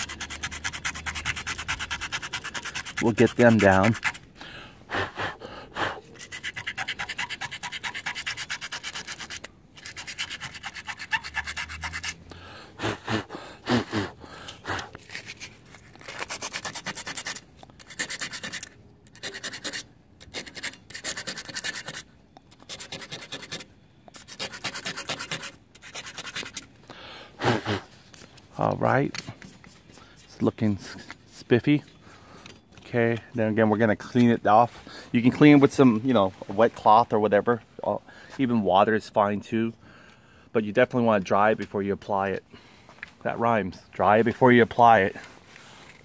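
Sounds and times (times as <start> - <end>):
sandpaper rubbing on metal tube: 0.0 - 4.2, 6.1 - 12.2, 15.0 - 26.7.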